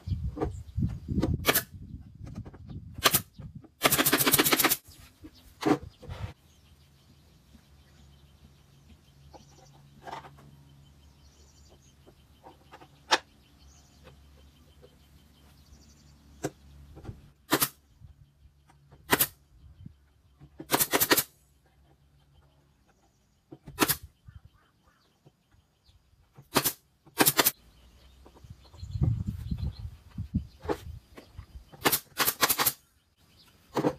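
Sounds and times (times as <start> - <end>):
faint bird chirps: 21.4 - 26.4, 27.5 - 31.8
sharp cracks on wood: 23.5 - 24.1, 26.4 - 27.6, 31.7 - 32.8.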